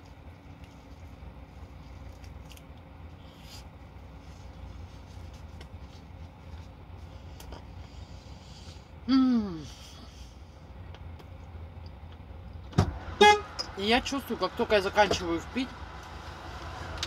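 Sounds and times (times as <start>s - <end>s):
chewing crispy food: 0.0s - 6.6s.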